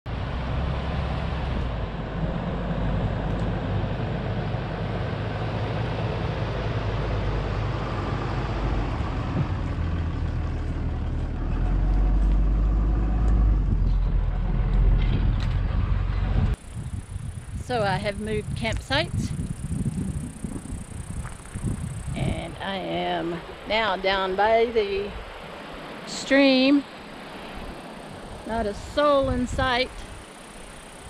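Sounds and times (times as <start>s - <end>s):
pickup truck engine: 0.1s - 17.2s
tyres on dirt track: 0.1s - 31.0s.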